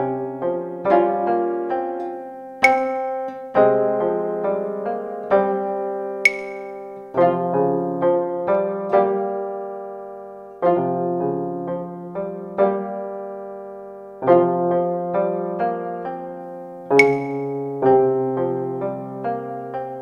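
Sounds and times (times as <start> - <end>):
piano music: 0.0 - 20.0
sharp click with high ring: 2.6 - 3.4, 6.3 - 7.0, 17.0 - 17.6.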